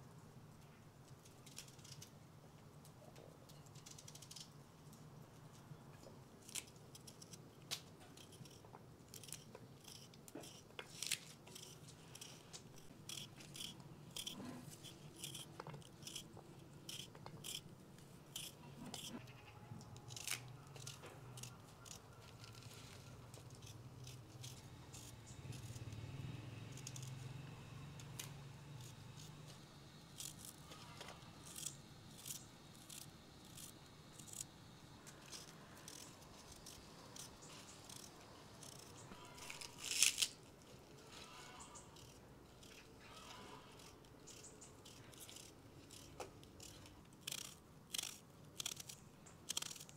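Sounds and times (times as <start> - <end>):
stems and leaves snapping and tearing: 19.8 - 23.5, 38.7 - 44.0.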